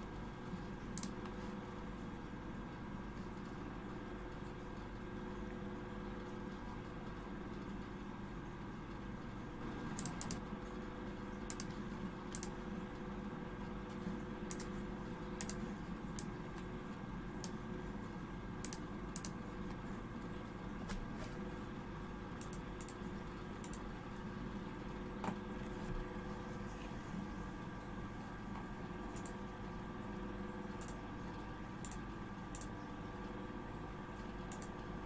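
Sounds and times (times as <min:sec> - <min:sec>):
faint steady hum: 0:00.0 - 0:35.0
keyboard and mouse clicks: 0:01.0 - 0:01.3, 0:10.0 - 0:10.4, 0:11.5 - 0:12.6, 0:14.5 - 0:14.7, 0:15.4 - 0:15.6, 0:18.6 - 0:19.4, 0:22.4 - 0:23.0, 0:23.6 - 0:23.8, 0:29.1 - 0:29.4, 0:30.8 - 0:31.0, 0:31.8 - 0:32.7, 0:34.5 - 0:34.8.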